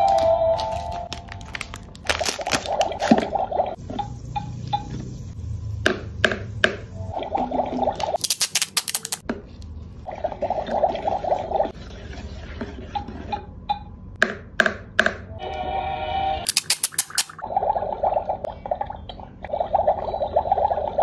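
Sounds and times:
plastic packet crinkling: 0.1 - 3.2, 8.2 - 9.2, 16.5 - 17.4
toy wand stirring water: 10.3 - 13.2, 16.5 - 17.4.

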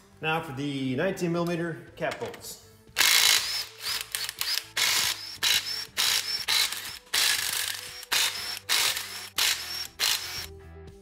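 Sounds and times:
impact wrench whining: 3.0 - 10.5.

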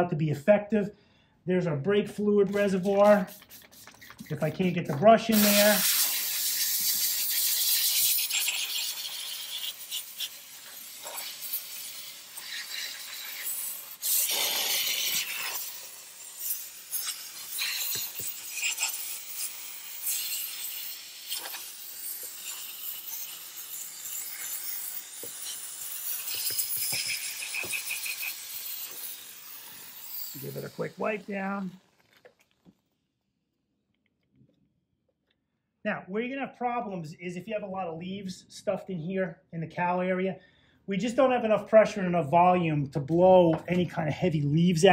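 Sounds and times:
brush scrubbing: 2.5 - 4.8
steam cleaner hissing: 2.5 - 31.8.

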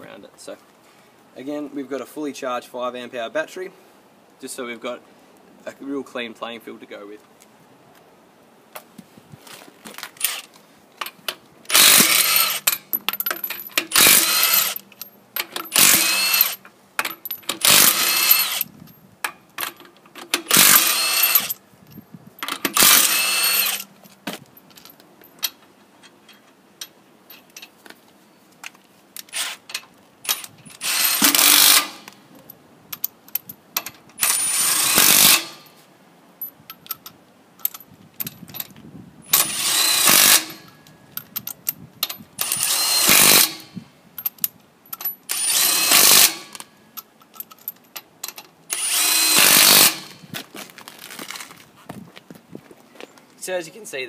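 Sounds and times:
impact wrench rattling on wheel nuts: 10.2 - 18.7, 19.6 - 21.6, 22.4 - 24.0, 29.3 - 32.1, 33.4 - 35.7, 39.3 - 44.4, 45.0 - 46.6, 47.2 - 50.3.

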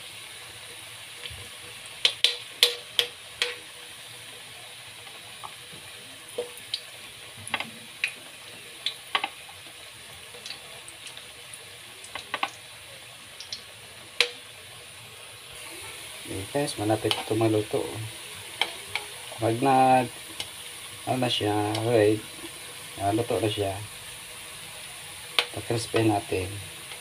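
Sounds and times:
food deep-frying in hot oil: 0.0 - 27.0
sharp crackling pops: 2.0 - 3.7, 25.3 - 27.0.

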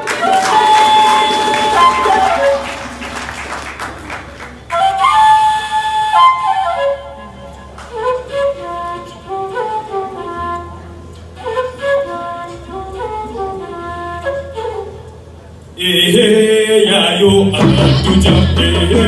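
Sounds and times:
flute playing lively melody: 0.0 - 3.1, 4.5 - 15.4.

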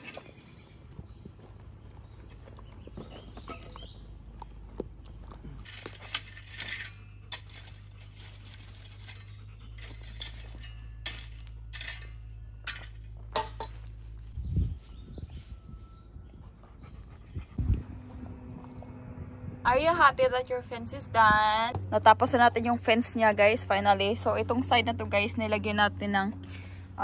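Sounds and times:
steady low rumble: 0.0 - 27.0
metallic clinks and jingles: 5.6 - 14.0.

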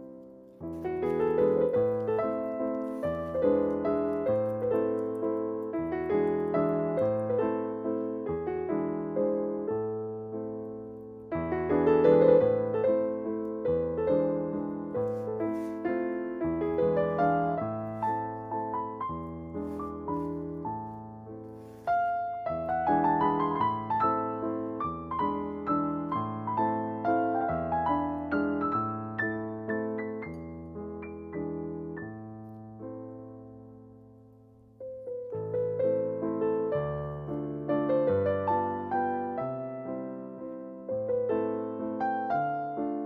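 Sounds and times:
piano music: 0.0 - 43.0.

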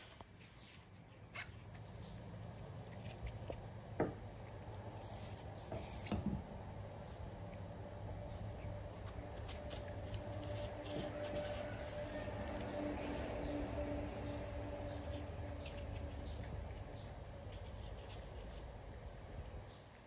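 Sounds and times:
knife scraping apple skin: 0.0 - 3.7, 4.8 - 6.2, 8.3 - 19.1.

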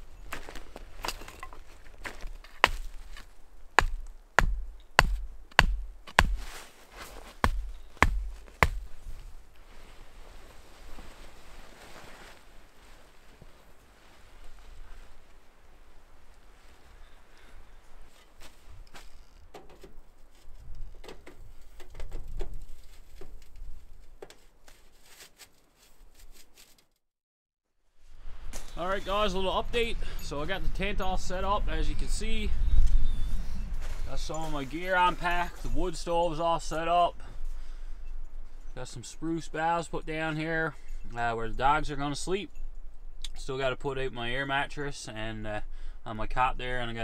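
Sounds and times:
axe knocking wooden stake: 2.5 - 6.6, 7.4 - 9.0
wind rumbling on microphone: 28.2 - 35.0.

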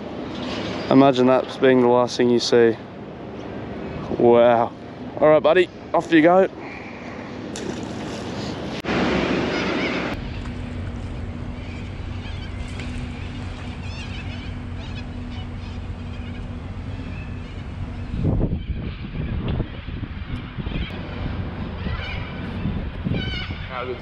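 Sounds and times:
wind rumbling on microphone: 6.6 - 24.0
short bird calls: 9.5 - 19.5.

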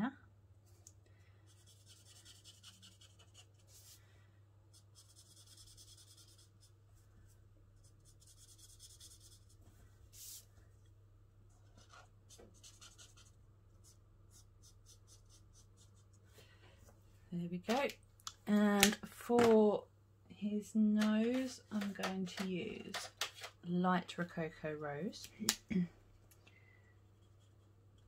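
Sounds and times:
marker scratching on cardstock: 1.5 - 4.0, 4.7 - 6.7, 7.8 - 9.6, 11.8 - 16.0.

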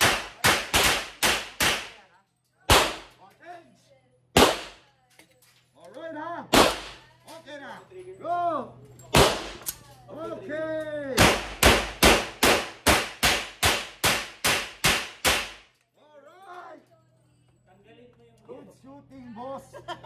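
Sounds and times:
pistol shots echoing indoors: 11.2 - 15.6.

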